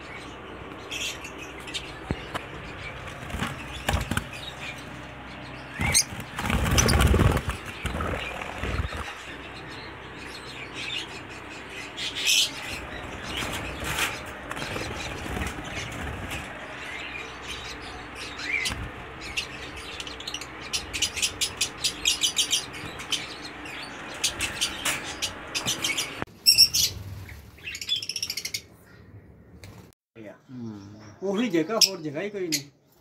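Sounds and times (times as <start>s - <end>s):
lovebirds chirping: 0.0s - 29.8s.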